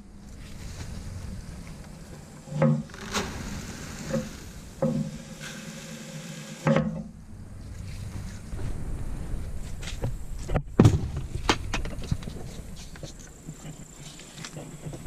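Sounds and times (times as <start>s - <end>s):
sharp knocks of gate and buckets: 2.6s - 5.5s, 6.6s - 7.2s, 10.5s - 12.0s.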